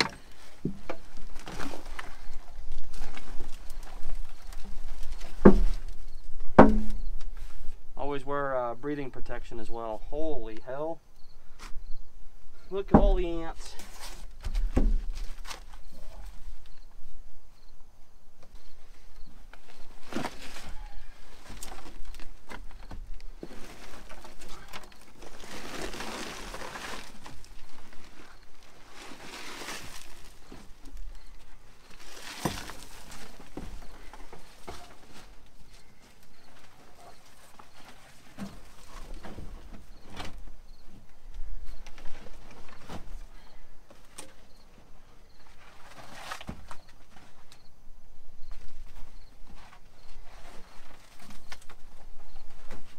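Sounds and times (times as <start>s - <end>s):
knocks and scrapes: 0.0s - 7.8s, 12.7s - 16.5s, 18.4s - 41.1s, 43.9s - 47.7s, 48.4s - 52.9s
carpet and debris pulled from floor: 23.5s - 30.8s.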